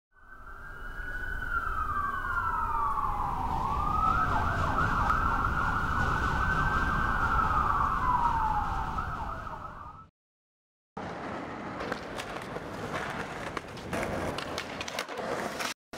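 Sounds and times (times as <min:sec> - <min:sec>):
emergency siren wailing and yelping: 0:00.2 - 0:10.1
low traffic rumble: 0:00.5 - 0:10.0.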